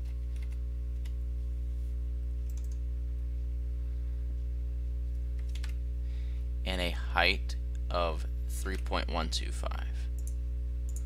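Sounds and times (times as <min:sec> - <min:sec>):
low electrical hum: 0:00.0 - 0:11.0
keyboard and mouse clicks: 0:00.1 - 0:01.2, 0:02.4 - 0:02.8, 0:05.4 - 0:05.8.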